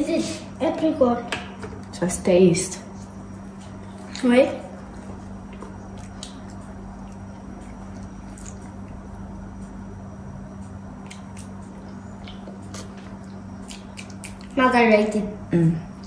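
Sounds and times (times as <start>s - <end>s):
steady low hum: 0.0s - 16.0s
toddler chewing cookie: 4.9s - 14.6s.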